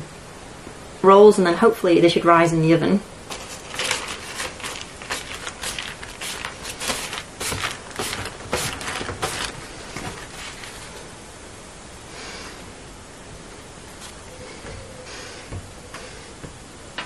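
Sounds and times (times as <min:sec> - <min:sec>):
baking parchment crinkling: 0:03.3 - 0:11.1.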